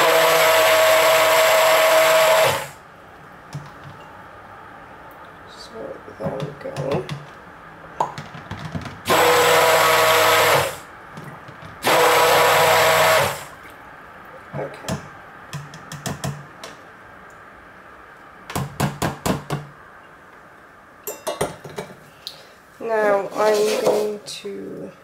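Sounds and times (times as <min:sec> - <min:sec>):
immersion blender running: 0:00.0 - 0:02.8, 0:09.1 - 0:10.9, 0:11.8 - 0:13.6.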